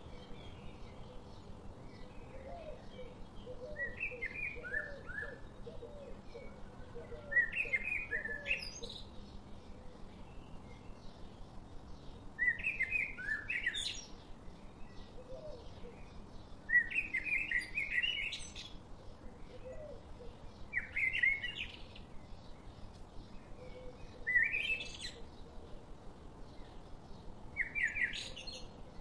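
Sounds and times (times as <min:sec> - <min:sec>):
small songbirds chirping: 0:00.0 - 0:29.0.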